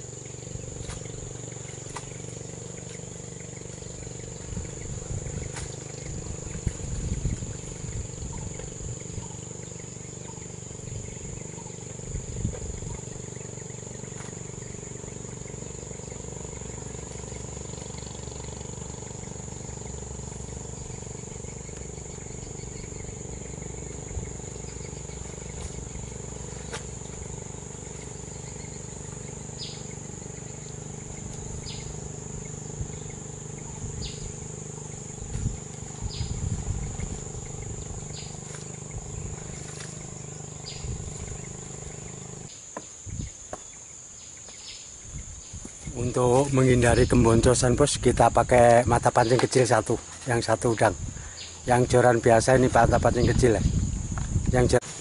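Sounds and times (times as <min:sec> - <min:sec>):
low steady hum: 0:00.0 - 0:42.5
high-pitched insect drone: 0:00.0 - 0:55.0.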